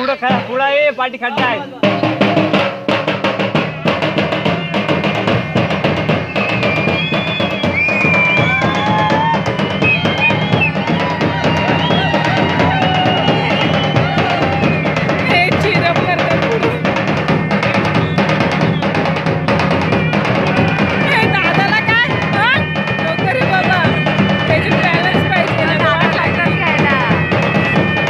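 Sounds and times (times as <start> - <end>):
drums beating fast rhythm: 0.0 - 28.0
high wavering melody: 1.4 - 4.0.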